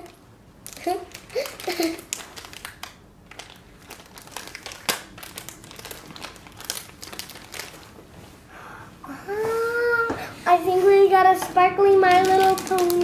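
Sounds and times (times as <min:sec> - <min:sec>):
foil bag crinkling and tearing: 0:00.6 - 0:08.0, 0:11.8 - 0:13.0.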